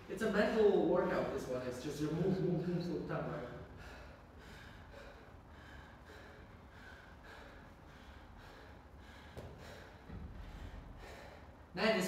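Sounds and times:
man panting hard: 3.3s - 11.8s.

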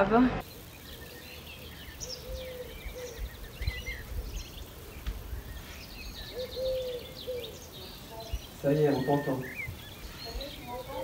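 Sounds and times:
small birds chirping and trilling: 0.0s - 11.0s
pigeon cooing: 2.0s - 5.2s, 6.2s - 7.8s.

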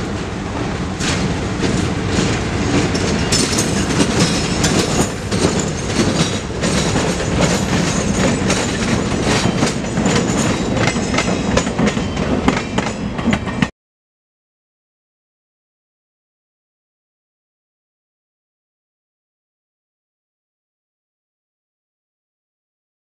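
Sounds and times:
diesel locomotive engine rumbling: 0.0s - 13.7s
train wheels clicking over rail joints: 0.0s - 13.7s.

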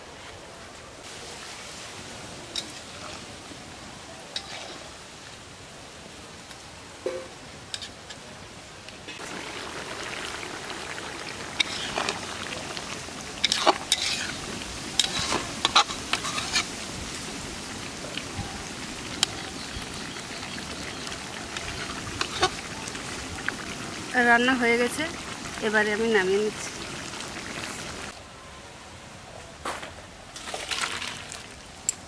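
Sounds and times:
curry sizzling and bubbling: 1.0s - 5.5s, 9.0s - 28.2s.

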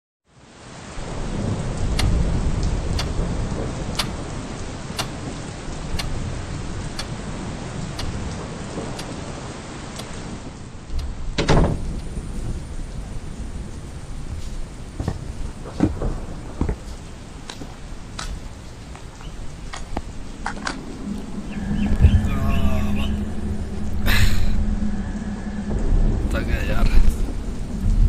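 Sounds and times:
steady rain: 0.2s - 28.0s
low rumbling thunder: 1.0s - 9.6s, 10.4s - 28.0s
wall clock ticking: 3.9s - 4.2s, 4.9s - 5.2s, 5.9s - 6.1s, 7.9s - 8.2s, 10.0s - 10.2s.

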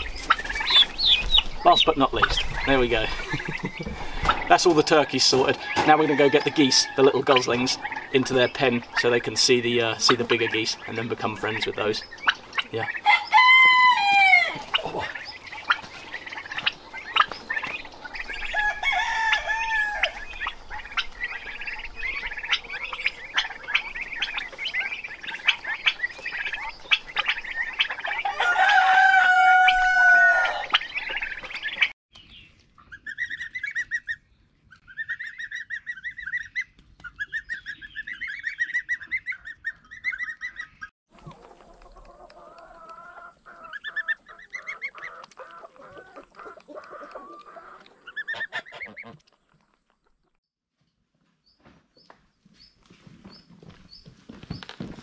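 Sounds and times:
goslings peeping: 0.0s - 50.4s
poultry chirping and clucking: 0.0s - 55.0s
rooster crowing: 5.7s - 7.2s, 13.0s - 14.7s, 18.5s - 20.2s, 28.2s - 30.8s.

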